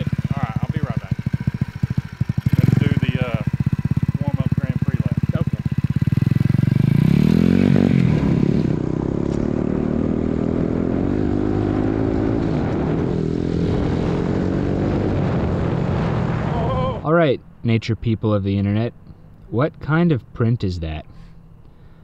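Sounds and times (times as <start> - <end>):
mini bike engine revving: 0.0 - 16.9.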